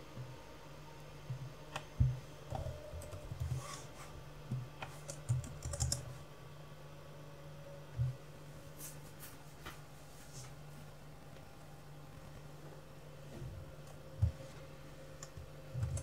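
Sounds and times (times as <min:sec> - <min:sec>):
typing on computer keyboard: 0:05.0 - 0:06.0, 0:15.2 - 0:16.0.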